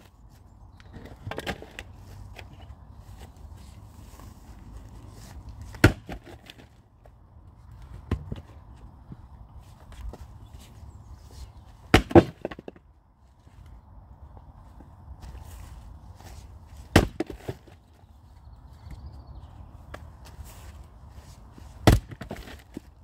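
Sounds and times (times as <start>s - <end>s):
wooden knocks of logs: 0.8s - 2.7s, 5.6s - 7.2s, 7.8s - 9.2s, 11.8s - 12.9s, 16.8s - 17.9s, 21.7s - 23.0s.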